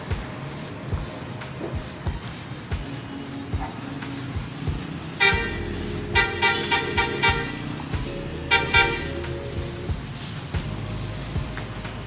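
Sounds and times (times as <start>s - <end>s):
vehicle horns honking: 5.1s - 9.5s.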